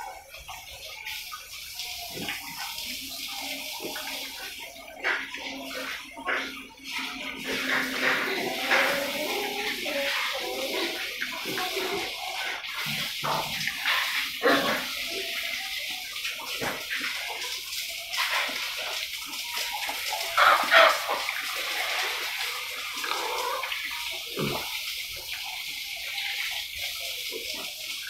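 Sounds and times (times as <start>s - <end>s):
running water hiss: 0.0s - 28.0s
young pigs grunting: 5.4s - 15.6s, 22.7s - 25.5s.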